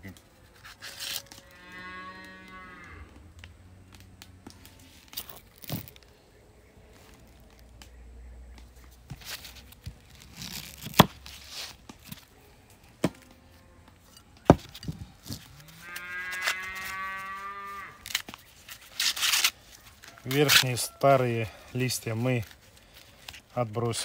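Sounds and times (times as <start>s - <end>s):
corn husks tearing: 0.0s - 24.0s
cow mooing: 1.4s - 3.2s, 15.6s - 18.0s.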